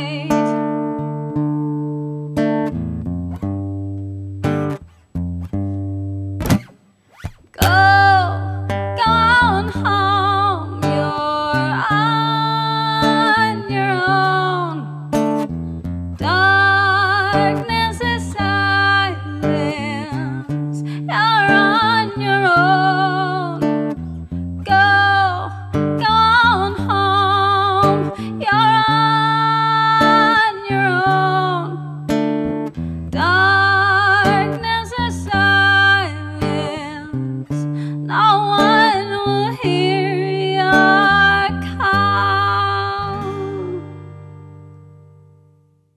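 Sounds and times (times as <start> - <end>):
woman singing with vibrato: 0.0 - 0.6, 7.6 - 15.3, 16.2 - 24.0, 24.6 - 32.2, 33.1 - 44.1
acoustic guitar: 0.0 - 45.9.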